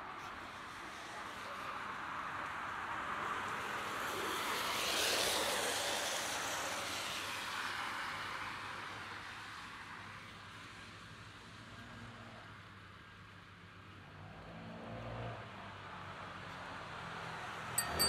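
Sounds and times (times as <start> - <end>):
car tyres hissing on wet road: 0.5 - 10.9.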